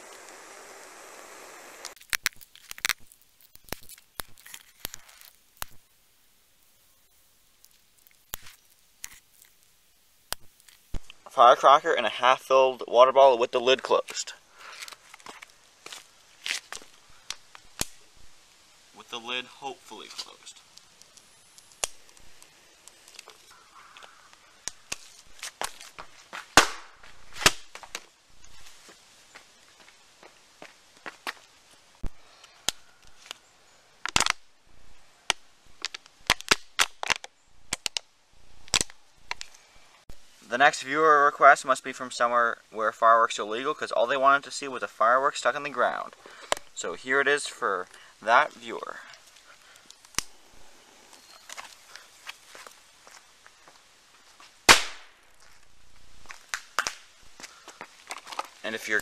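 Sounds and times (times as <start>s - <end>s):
lighter flame hissing: 0.0s - 2.0s
sharp crack: 0.0s - 5.9s, 7.6s - 9.6s, 10.3s - 11.3s, 14.7s - 18.1s, 19.6s - 28.1s, 34.0s - 34.5s, 35.2s - 39.6s, 49.6s - 50.4s, 54.6s - 55.4s, 56.3s - 59.0s
small ticks and crackles: 0.0s - 11.4s, 14.1s - 26.6s, 27.4s - 34.5s, 35.2s - 40.4s, 45.6s - 59.0s
toy caps popping and cracking: 1.9s - 5.8s, 34.0s - 34.4s
firecracker bang: 26.6s - 27.6s, 54.7s - 55.2s.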